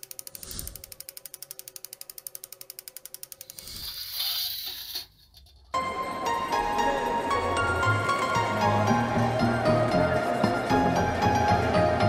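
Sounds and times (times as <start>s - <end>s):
rapid mechanical clicking: 0.0s - 5.7s
scraping handling noise: 3.5s - 5.8s.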